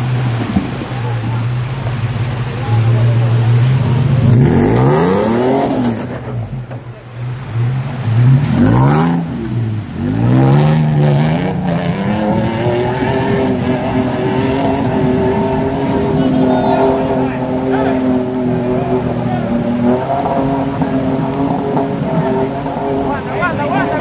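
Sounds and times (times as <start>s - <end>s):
engine revving: 0.0s - 24.0s
water splashing: 0.0s - 24.0s.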